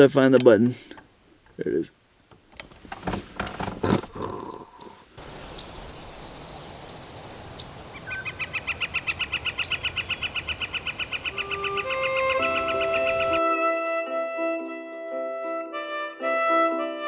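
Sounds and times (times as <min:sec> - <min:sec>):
steady hiss: 0:00.0 - 0:13.4
rapid chirping trill: 0:05.2 - 0:13.4.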